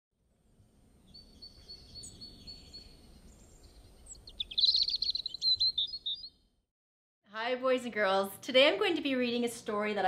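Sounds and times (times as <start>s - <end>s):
songbird singing: 0.4s - 6.6s.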